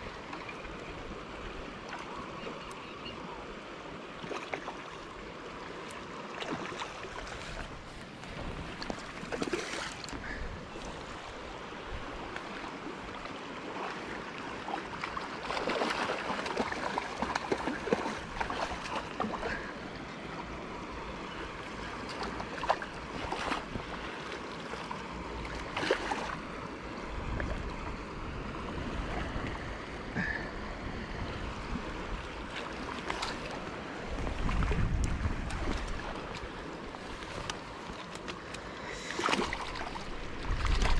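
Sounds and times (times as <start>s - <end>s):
river running over stones: 0.0s - 30.8s, 31.4s - 40.9s
fish splashing in water: 14.6s - 19.7s
wind gusts on microphone: 34.0s - 36.5s, 39.4s - 40.9s.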